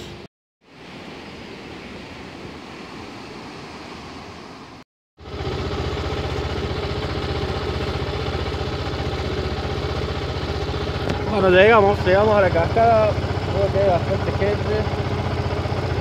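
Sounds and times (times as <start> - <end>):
wind and road rumble: 0.0 - 16.0
motorcycle engine idling: 5.2 - 16.0
motorcycle engine running: 5.2 - 16.0.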